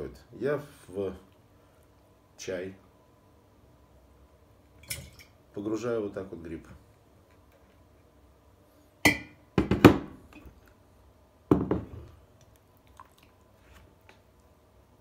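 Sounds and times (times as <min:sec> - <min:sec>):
glass jars knocking on wooden table: 0:09.1 - 0:10.1, 0:11.5 - 0:12.1.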